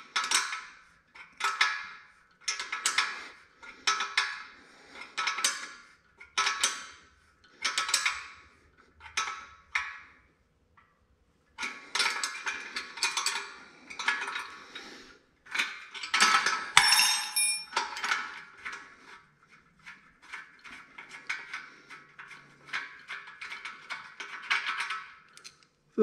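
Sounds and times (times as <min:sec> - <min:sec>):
wrenches clinking on metal: 0:00.0 - 0:03.2, 0:05.0 - 0:07.0, 0:11.6 - 0:14.6, 0:15.4 - 0:18.9, 0:19.8 - 0:25.6
small clicks: 0:25.3 - 0:25.8.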